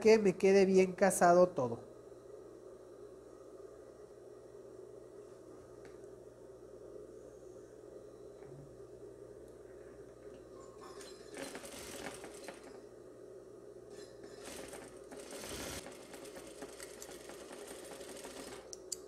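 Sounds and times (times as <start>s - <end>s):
sewing machine stitching: 10.9s - 12.8s, 13.9s - 18.8s.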